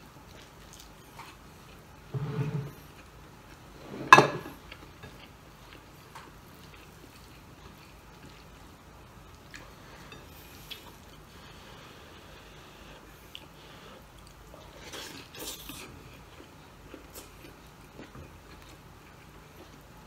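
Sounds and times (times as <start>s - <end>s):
chewing and fingers on plate: 4.5s - 8.7s, 9.3s - 11.6s.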